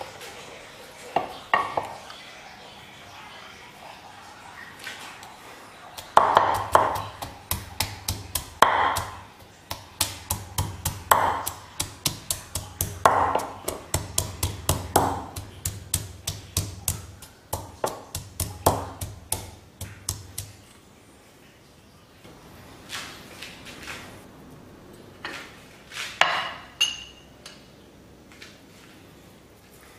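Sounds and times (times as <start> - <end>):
pestle pounding in a mortar: 6.0 - 20.6.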